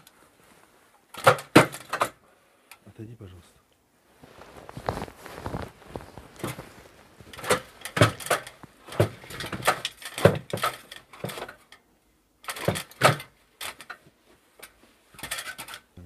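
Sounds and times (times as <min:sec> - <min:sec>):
knocks and clatters of hard objects: 0:01.1 - 0:02.2, 0:04.8 - 0:11.7, 0:12.4 - 0:15.9.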